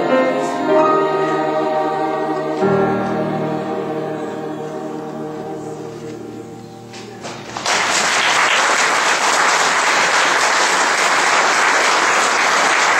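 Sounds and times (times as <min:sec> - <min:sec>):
choir singing: 0:00.0 - 0:07.2
congregation applauding: 0:07.0 - 0:12.9.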